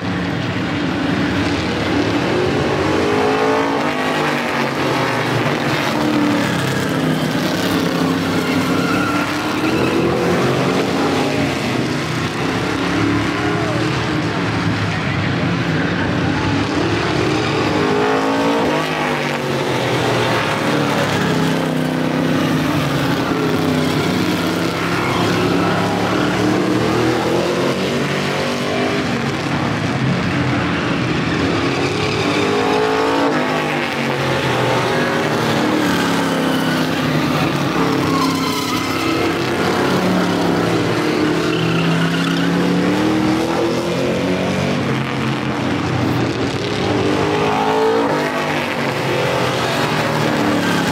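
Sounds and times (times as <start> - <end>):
race car engines revving: 0.0 - 50.9.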